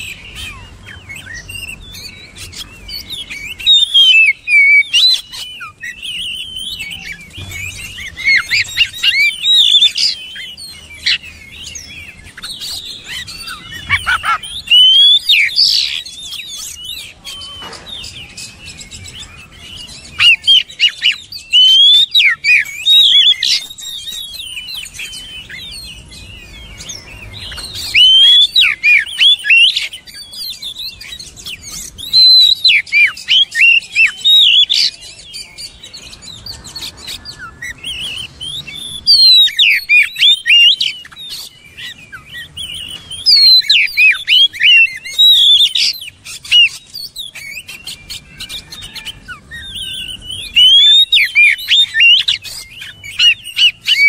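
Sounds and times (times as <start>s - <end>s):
bird singing whistles and chirps: 0.0s - 54.0s.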